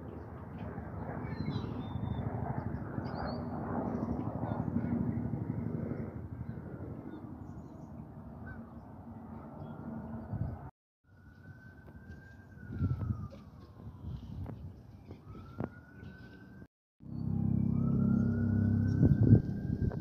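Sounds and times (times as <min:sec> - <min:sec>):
wind buffeting microphone: 0:09.6 - 0:10.7, 0:12.0 - 0:16.7, 0:17.7 - 0:20.0.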